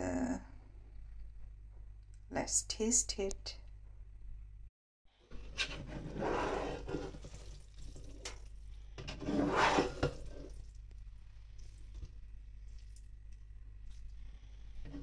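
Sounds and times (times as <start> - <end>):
spatula scraping rice in wok: 5.4 - 7.4, 9.0 - 10.6.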